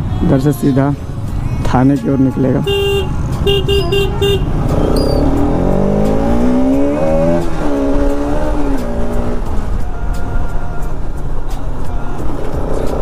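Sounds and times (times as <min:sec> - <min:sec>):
horn beeps: 0:02.6 - 0:05.5
motorcycle engine revving: 0:02.7 - 0:09.8.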